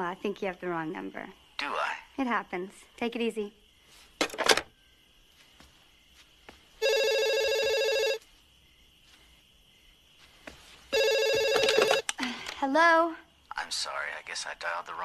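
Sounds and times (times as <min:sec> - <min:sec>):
telephone ringing: 0:06.8 - 0:08.2, 0:10.9 - 0:12.1.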